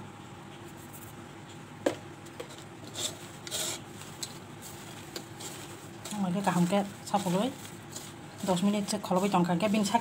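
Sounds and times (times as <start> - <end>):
vegetables rustling in a bowl: 2.3 - 10.0.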